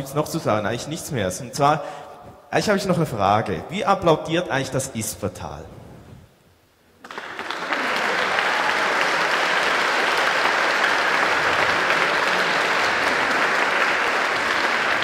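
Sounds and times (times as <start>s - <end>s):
crowd clapping: 7.0s - 15.0s.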